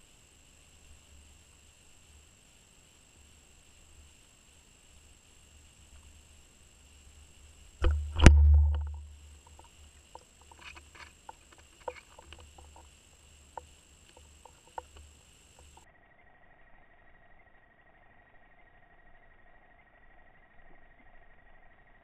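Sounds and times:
heavy underwater thump: 0:07.8 - 0:09.7
low rumble: 0:07.8 - 0:09.7
high electronic whine: 0:07.8 - 0:09.8
faint clicks and taps: 0:07.8 - 0:15.8.

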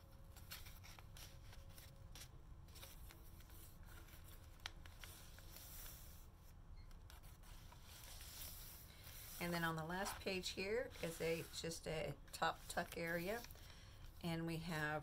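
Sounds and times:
paper pages turning: 0:00.3 - 0:06.2, 0:06.9 - 0:11.7, 0:12.5 - 0:13.7.

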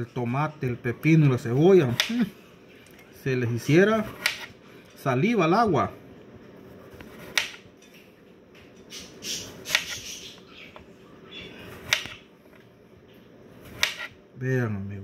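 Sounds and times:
knife slicing cucumber: 0:04.1 - 0:04.5, 0:06.9 - 0:07.6, 0:09.4 - 0:10.2, 0:11.7 - 0:12.2, 0:13.6 - 0:14.2.

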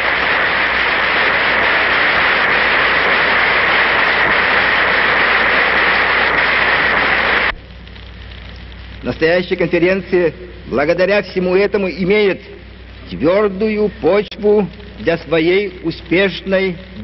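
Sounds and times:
audience applause: 0:00.0 - 0:07.5.

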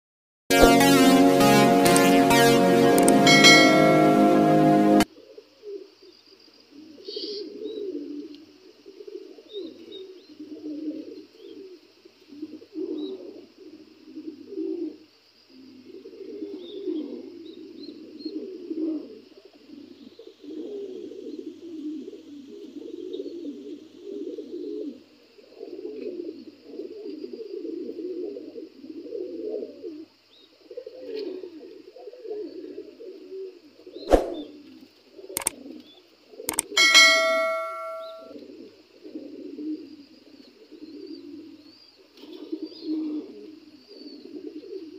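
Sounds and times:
pigeons cooing: 0:06.7 - 0:15.1, 0:15.7 - 0:37.5, 0:38.3 - 0:44.9
sharp knock: 0:34.1 - 0:34.4.

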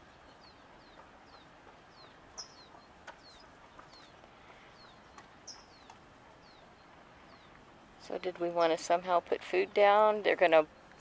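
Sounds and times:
small bird chirping: 0:00.2 - 0:08.8.

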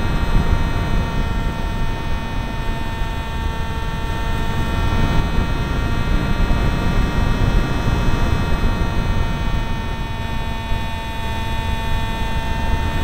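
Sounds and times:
motor and propeller whine: 0:00.0 - 0:13.0
wind buffeting microphone: 0:00.0 - 0:13.0.

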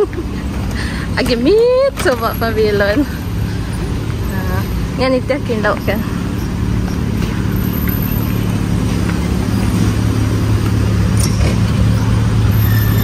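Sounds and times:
high squeak: 0:11.1 - 0:13.0.

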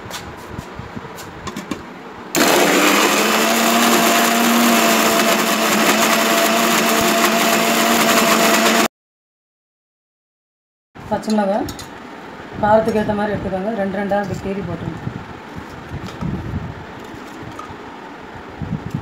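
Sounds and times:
mixer grinder motor running: 0:02.4 - 0:08.9.

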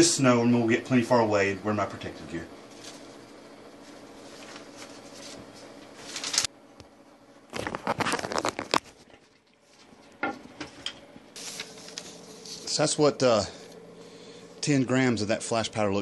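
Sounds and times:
paper rustling and crinkling: 0:02.7 - 0:03.2, 0:03.8 - 0:06.5, 0:07.5 - 0:10.1, 0:11.4 - 0:12.7.

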